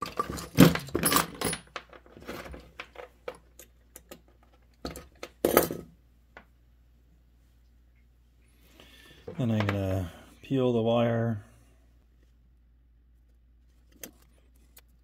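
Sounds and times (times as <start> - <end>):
metal tools clinking and rattling: 0.0 - 5.8
metal tools clattering: 0.0 - 5.9.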